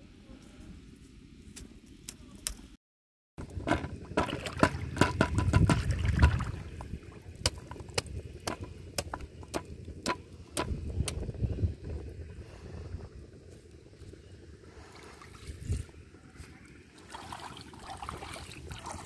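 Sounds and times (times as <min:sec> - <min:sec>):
bamboo fish trap knocking: 0:03.4 - 0:06.6, 0:07.4 - 0:10.8
water dripping and sloshing: 0:03.4 - 0:10.7, 0:14.8 - 0:19.0.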